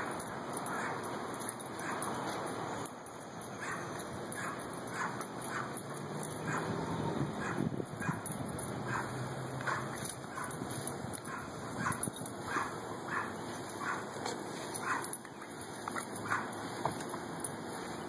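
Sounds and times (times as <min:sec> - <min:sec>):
dog yipping: 0:00.7 - 0:01.0, 0:03.6 - 0:05.8, 0:06.4 - 0:06.8, 0:07.4 - 0:08.3, 0:08.9 - 0:10.6, 0:11.2 - 0:14.1, 0:14.8 - 0:15.2, 0:16.2 - 0:16.6
hose water spray hissing: 0:08.8 - 0:18.0.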